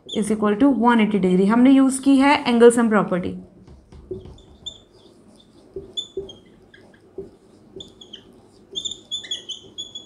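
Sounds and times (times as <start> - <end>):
marker squeaking on whiteboard: 0.0 - 0.5, 3.4 - 10.0.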